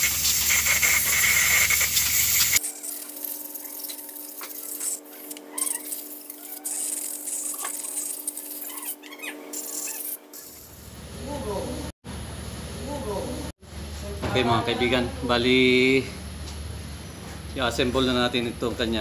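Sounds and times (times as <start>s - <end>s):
compressed air hissing: 0.0s - 10.7s.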